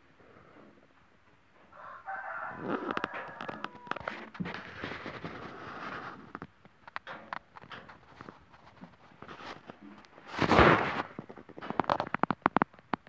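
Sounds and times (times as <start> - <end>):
rooster crowing: 1.7 - 4.4
clattering clicks and knocks: 6.2 - 13.0.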